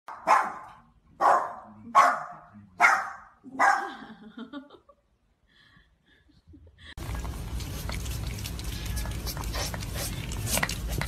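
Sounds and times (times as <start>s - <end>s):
dog barking sharply: 0.1s - 3.9s.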